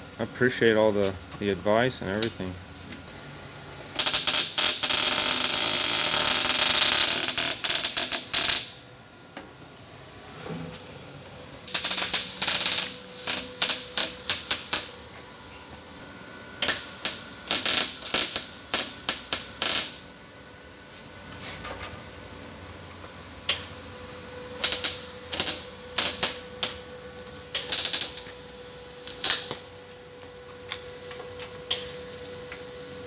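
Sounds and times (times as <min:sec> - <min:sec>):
welding arc crackling: 0:03.1 - 0:08.9, 0:11.7 - 0:15.1, 0:16.6 - 0:20.1, 0:23.5 - 0:26.9, 0:27.5 - 0:31.0, 0:31.7 - 0:32.3.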